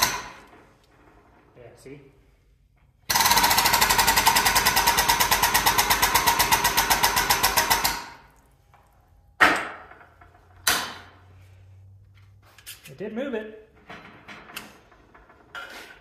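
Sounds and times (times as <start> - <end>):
hydraulic pump chattering: 3.1 - 8.2.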